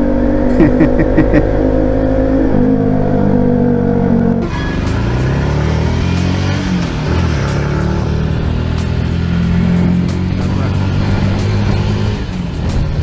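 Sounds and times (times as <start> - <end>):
motorcycle accelerating: 0.0 - 13.0
motorcycle engine running: 4.6 - 13.0.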